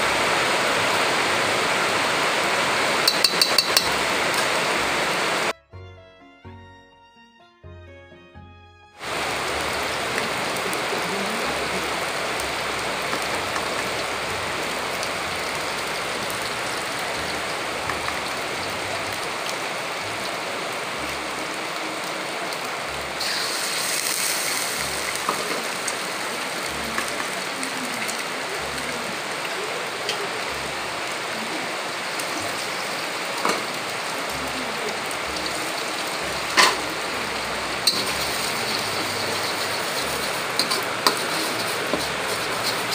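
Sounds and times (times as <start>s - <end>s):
paste sizzling in a wok: 0.1s - 5.5s, 9.0s - 19.2s, 23.0s - 28.7s, 32.1s - 34.1s, 35.2s - 42.9s
eggs poured into a wok: 23.2s - 25.8s, 37.8s - 42.9s.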